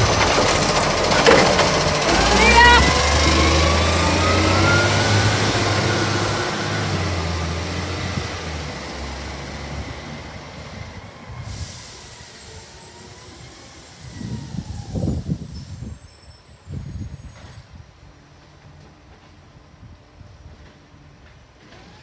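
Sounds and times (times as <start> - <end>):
low rumbles: 0.0 - 11.1
heavy vehicle engine: 0.0 - 15.2.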